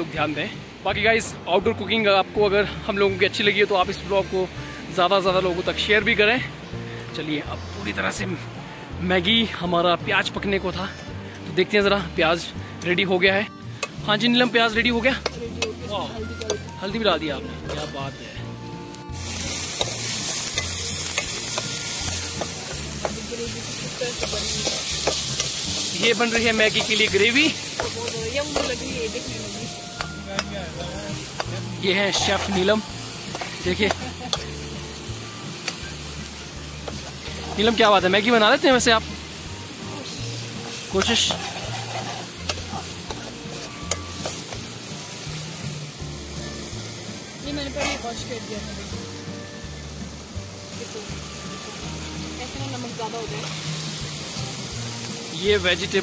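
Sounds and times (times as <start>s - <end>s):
gravy sizzling in a pan: 13.3s - 56.0s
steel ladle clicking against pan: 13.8s - 14.0s, 15.2s - 15.8s, 24.1s - 25.6s, 33.3s - 34.5s, 35.6s - 35.8s
ladle scraping and tapping pan: 24.1s - 26.0s, 33.3s - 34.5s, 41.0s - 44.7s.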